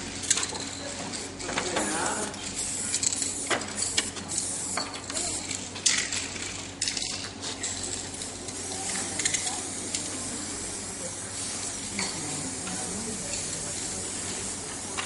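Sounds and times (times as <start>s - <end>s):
spray can hissing: 2.0s - 5.6s, 7.6s - 15.0s.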